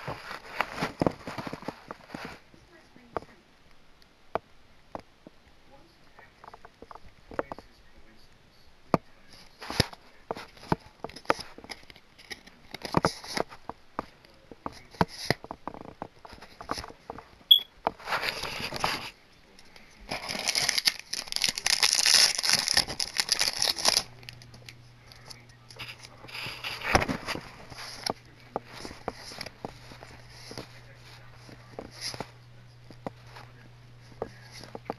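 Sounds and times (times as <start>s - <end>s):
wrapper crinkling and tearing: 20.1s - 28.1s.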